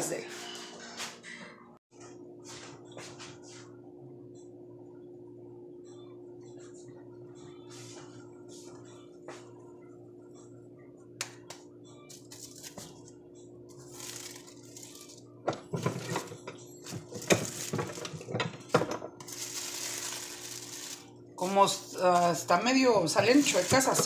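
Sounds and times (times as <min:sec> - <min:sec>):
plastic sheets crinkling: 0:13.9 - 0:15.2, 0:19.2 - 0:21.1, 0:23.2 - 0:24.0.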